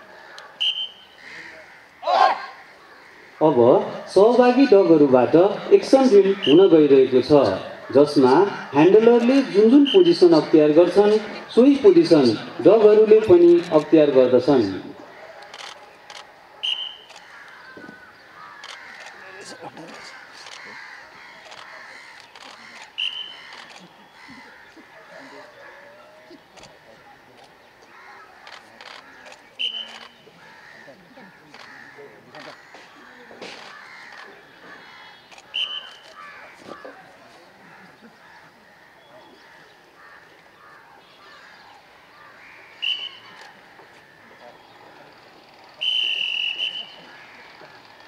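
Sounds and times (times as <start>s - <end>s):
faint bird calls: 0.0s - 4.6s, 14.8s - 48.0s
loud high whistle blast: 0.6s - 1.2s, 16.6s - 17.1s, 23.0s - 23.4s, 35.6s - 35.9s, 42.8s - 43.4s, 45.8s - 47.0s
murmur of voices: 1.2s - 48.0s
scattered clicks: 15.4s - 17.6s, 18.6s - 19.2s, 28.4s - 30.2s.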